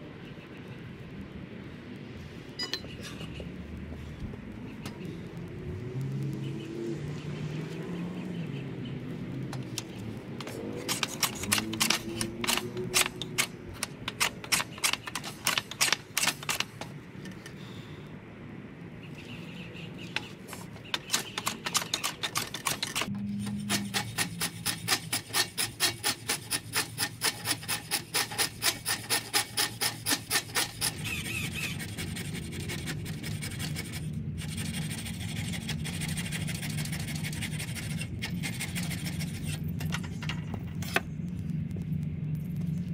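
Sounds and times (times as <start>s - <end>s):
hand tool scraping wood: 9.6s - 17.5s, 20.1s - 40.2s.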